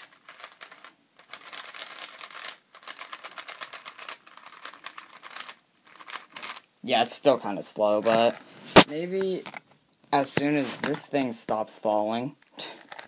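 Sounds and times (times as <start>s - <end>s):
puzzle cube plastic clacks: 0.0s - 6.7s, 8.0s - 9.7s, 12.8s - 13.0s.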